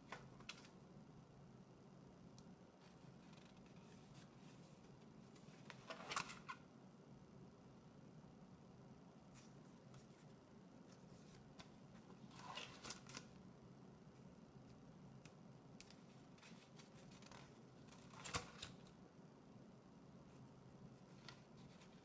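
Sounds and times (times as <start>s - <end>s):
sketchbook pages rustling: 9.3s - 13.4s, 15.8s - 18.9s, 20.3s - 22.0s.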